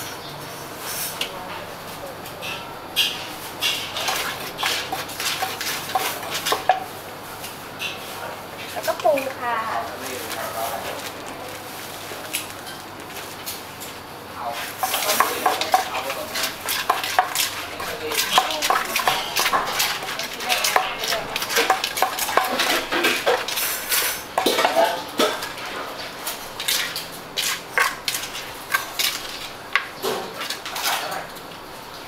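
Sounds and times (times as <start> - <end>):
pestle pounding in a mortar: 4.1 - 6.9, 14.8 - 23.7.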